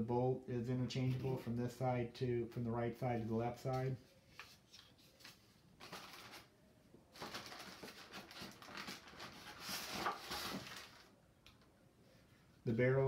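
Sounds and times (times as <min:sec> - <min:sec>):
packing plastic rustling: 0:05.1 - 0:11.2.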